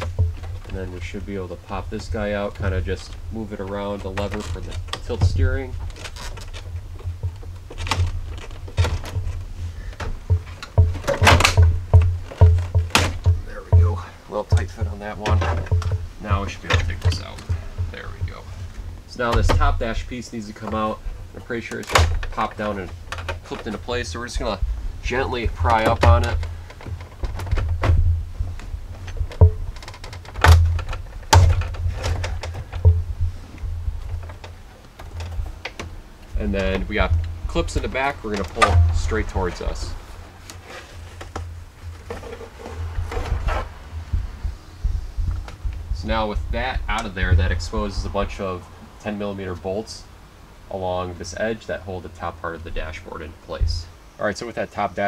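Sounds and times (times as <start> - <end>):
plastic trim clicking and knocking: 0.0 - 0.8, 2.5 - 19.9, 21.7 - 44.4
plastic clatters: 0.0 - 43.8
handling noise: 0.0 - 54.1.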